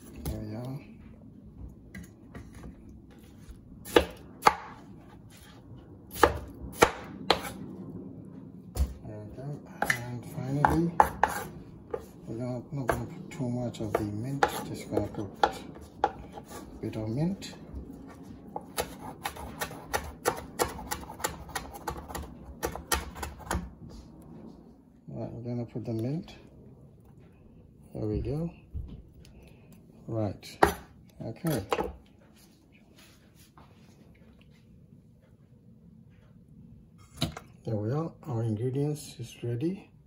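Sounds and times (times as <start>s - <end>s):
knife chopping on wooden board: 3.8s - 4.8s, 6.1s - 7.6s, 9.8s - 12.1s, 13.8s - 16.6s, 18.6s - 23.7s, 30.5s - 32.0s.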